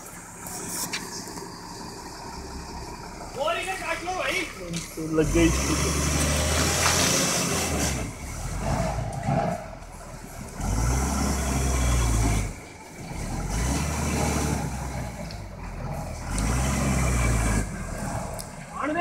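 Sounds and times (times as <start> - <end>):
truck diesel engine rumbling: 0.0 - 19.0.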